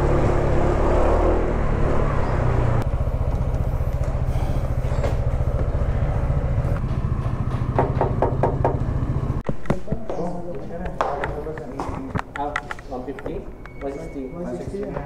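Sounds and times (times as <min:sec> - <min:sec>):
scooter engine idling: 0:02.8 - 0:09.4
sharp knocks: 0:06.8 - 0:12.8.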